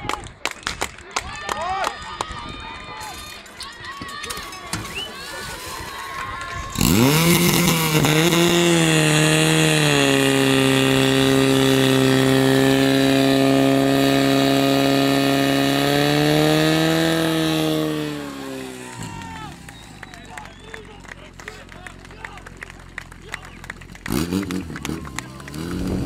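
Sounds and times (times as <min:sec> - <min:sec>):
pump engine revving: 0:06.7 - 0:26.0.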